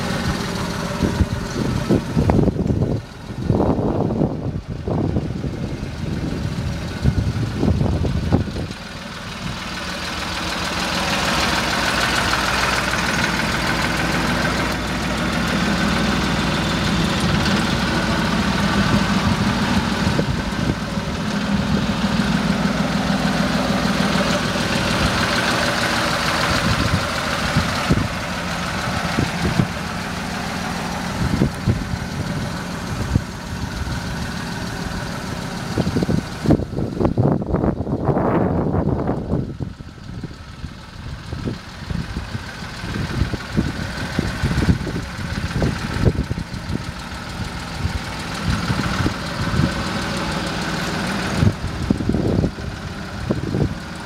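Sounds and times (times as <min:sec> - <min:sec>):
low bumps: 0:00.0 - 0:42.4
truck engine idling: 0:00.0 - 0:54.0.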